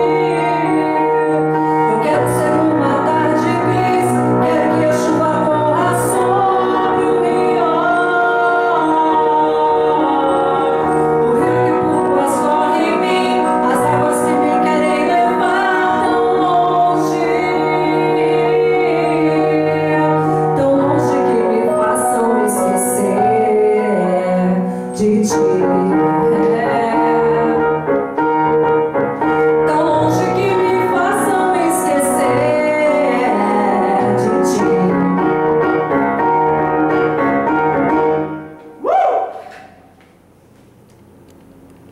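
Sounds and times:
woman singing pop ballad: 0.0s - 27.7s, 29.7s - 35.2s
piano accompaniment: 0.0s - 39.7s.

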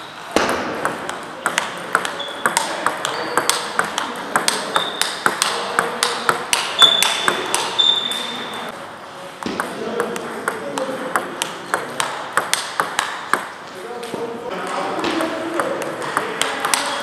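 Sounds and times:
table tennis ball clicking: 0.8s - 8.1s, 9.5s - 13.5s
short high squeaks: 2.2s - 3.4s, 6.8s - 8.7s.

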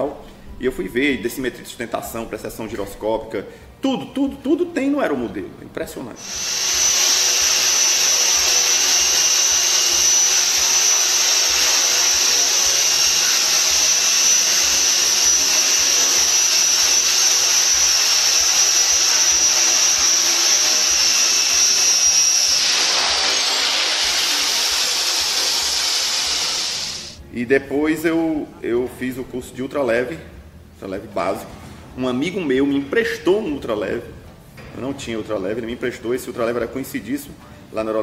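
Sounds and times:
model helicopter motor whine: 6.2s - 27.2s
rotor blades hissing: 6.2s - 27.2s.

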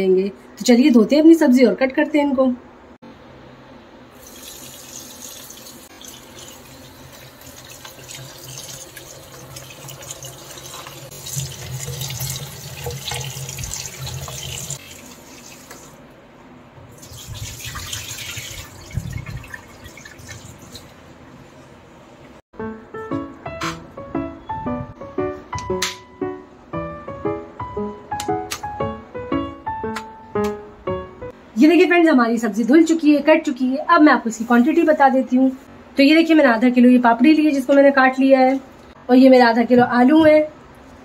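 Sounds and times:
tap water running into bowl: 4.2s - 16.0s, 17.0s - 20.9s.

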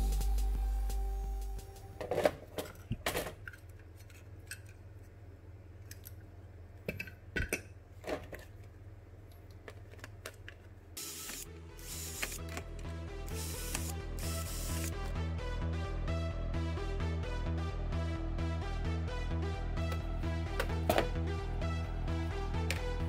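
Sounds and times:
music with pulsing beat: 0.0s - 2.0s, 12.7s - 23.0s.

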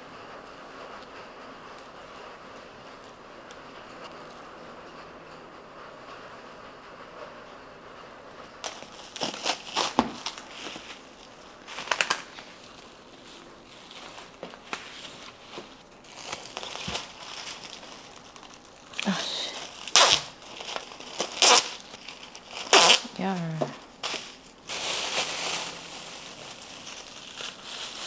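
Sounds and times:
cling wrap crinkling: 8.6s - 28.0s
plastic bags rustling: 8.6s - 28.0s.

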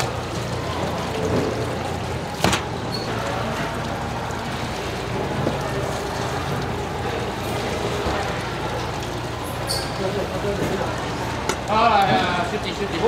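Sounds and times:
low hum and shop din: 0.0s - 13.0s.

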